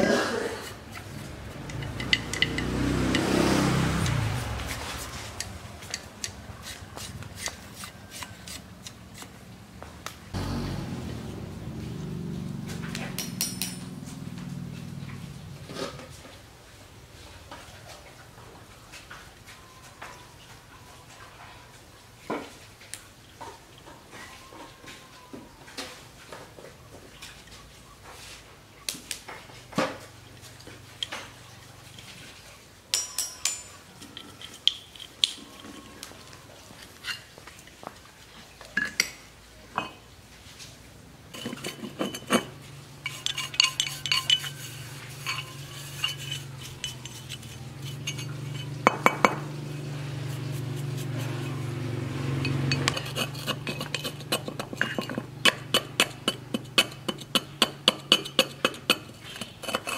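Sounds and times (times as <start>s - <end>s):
steel tools clinking on metal: 0.6s - 3.4s, 32.9s - 36.0s, 41.3s - 49.5s, 50.3s - 59.9s
short scraping strokes: 41.4s - 48.8s, 49.9s - 54.8s.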